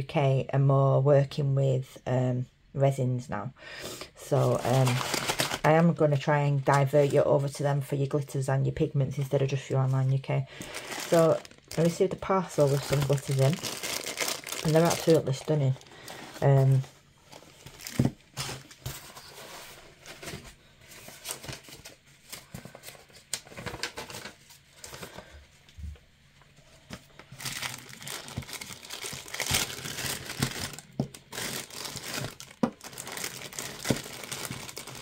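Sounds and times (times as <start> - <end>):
plastic bags crinkling: 4.2 - 7.3, 10.5 - 19.4, 20.0 - 25.3, 26.9 - 35.0
packing paper crinkling: 4.3 - 5.8, 10.5 - 25.3, 26.9 - 35.0.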